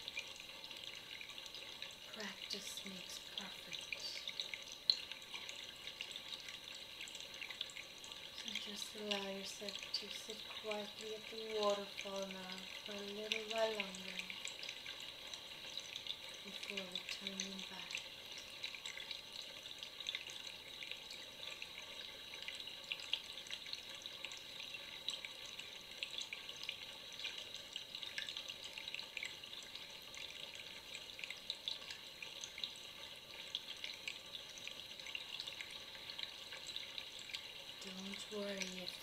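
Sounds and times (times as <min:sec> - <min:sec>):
small splashes and drips: 0:00.0 - 0:39.0
water trickling and bubbling: 0:00.0 - 0:39.0.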